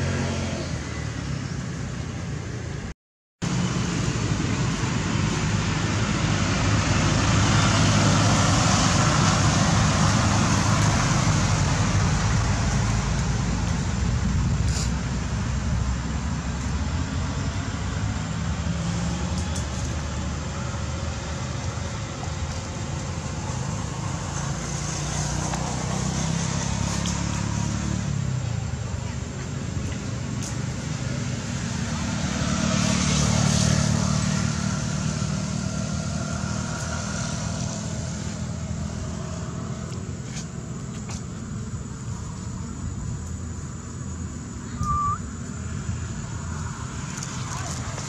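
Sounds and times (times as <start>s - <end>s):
constant hiss: 33.5s - 48.0s.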